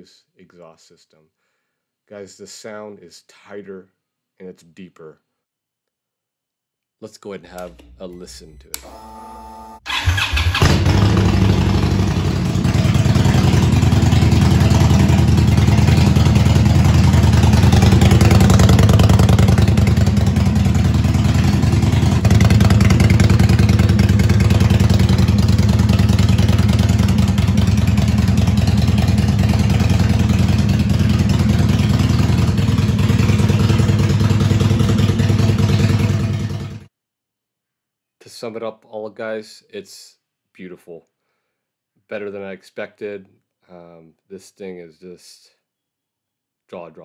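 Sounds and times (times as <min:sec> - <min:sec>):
motorcycle engine idling: 0:09.9 - 0:36.8.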